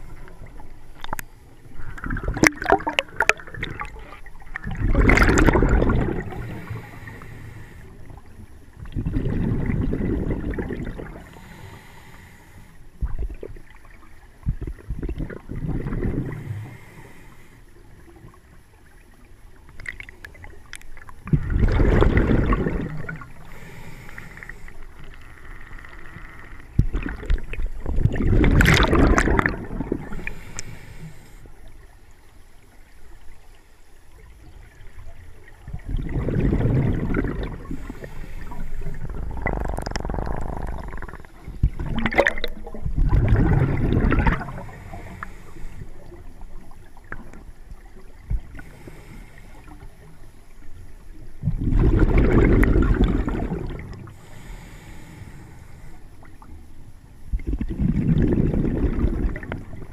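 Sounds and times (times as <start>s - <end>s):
exhaled bubbles rushing: 1.8s - 6.8s, 8.8s - 11.3s, 14.4s - 16.5s, 21.2s - 23.5s, 26.8s - 30.4s, 35.6s - 44.9s, 51.4s - 54.2s, 57.3s - 59.9s
regulator hiss: 30.0s - 31.7s, 37.6s - 41.4s, 44.5s - 46.4s, 48.5s - 50.7s, 54.0s - 57.2s.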